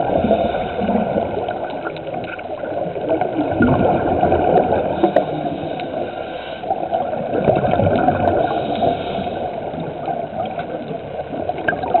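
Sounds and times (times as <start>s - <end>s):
faint clicks and crackles: 0.0s - 12.0s
muffled underwater noise: 0.0s - 12.0s.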